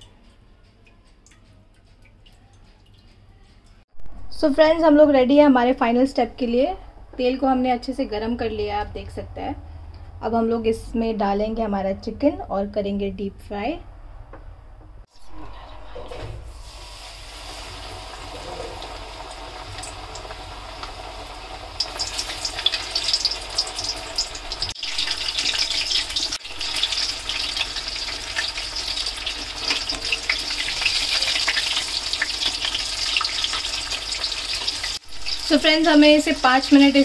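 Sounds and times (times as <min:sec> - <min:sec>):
chicken sizzling in hot oil: 0:16.6 - 0:37.0.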